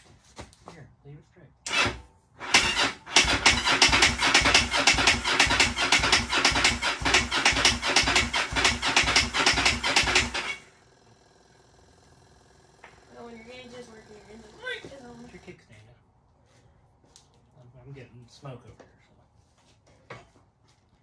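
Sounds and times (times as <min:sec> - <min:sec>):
motorcycle starter cranking engine: 0:01.6 - 0:15.6.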